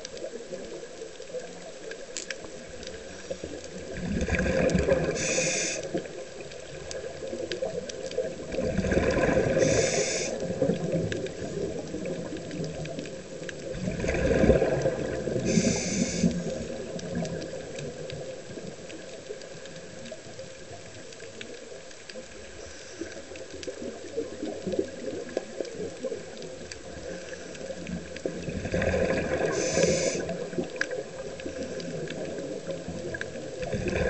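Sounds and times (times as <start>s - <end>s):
exhaust bubbles bubbling: 3.8s - 5.9s, 8.2s - 18.3s, 27.8s - 34.0s
regulator air hiss: 5.1s - 5.9s, 9.5s - 10.5s, 15.4s - 16.6s, 29.5s - 30.4s.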